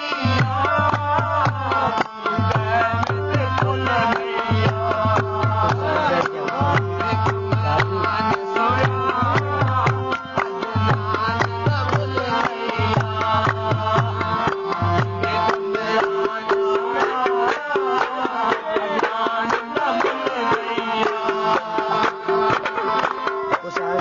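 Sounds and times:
hand drums rhythm: 0.0 - 24.0.

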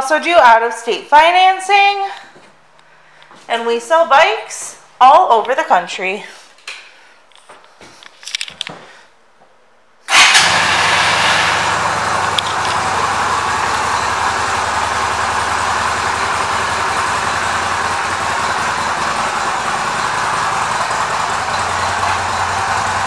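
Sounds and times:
motorcycle engine starting and idling: 10.1 - 23.0.

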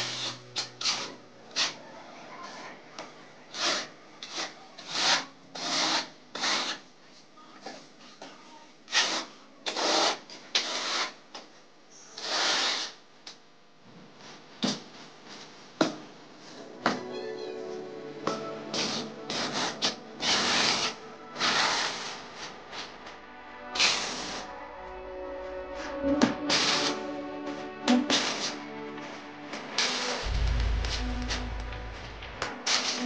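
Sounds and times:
trowel scraping adhesive: 0.0 - 1.8, 3.5 - 6.8, 8.9 - 11.2, 18.7 - 22.5, 23.8 - 24.4.

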